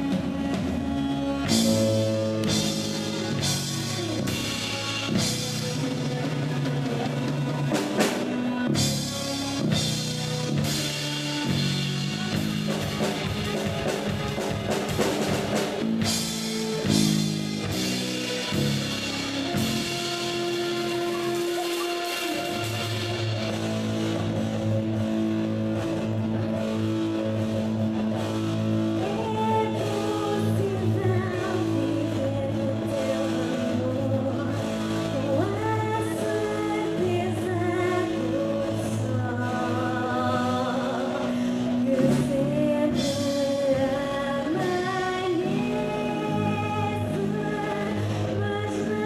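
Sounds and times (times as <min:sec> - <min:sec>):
live rock band playing: 0:00.0 - 0:49.0
woman singing lead vocal: 0:28.9 - 0:49.0.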